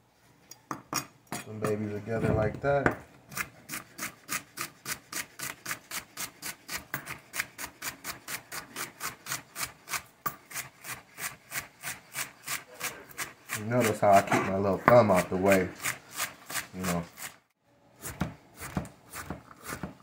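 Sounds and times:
knife chopping on plastic board: 0:18.0 - 0:20.0.

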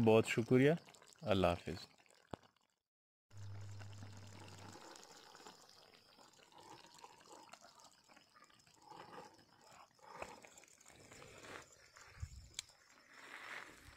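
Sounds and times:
low steady hum: 0:03.4 - 0:04.8.

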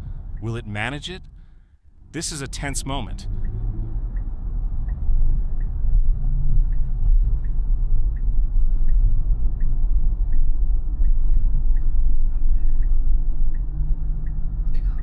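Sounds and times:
low road noise rumble: 0:00.0 - 0:15.0
turn signal ticking: 0:00.0 - 0:15.0.

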